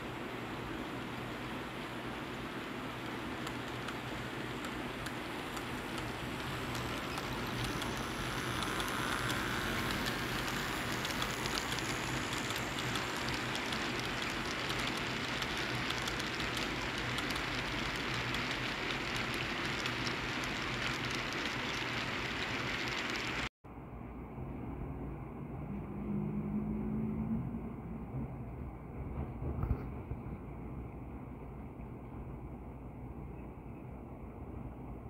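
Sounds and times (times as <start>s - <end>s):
model train wheels rumbling on track: 0.0s - 23.5s.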